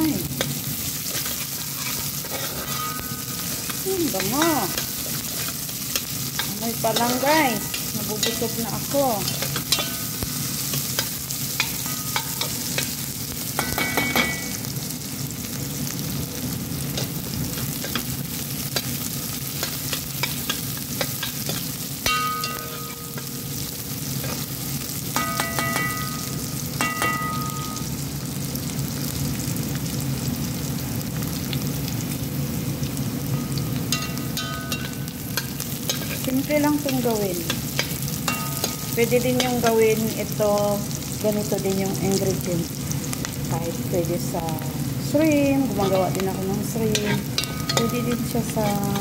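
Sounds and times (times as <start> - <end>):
food sizzling in hot oil: 0.0 - 49.0
spatula scraping a pan: 0.9 - 3.8, 46.9 - 49.0.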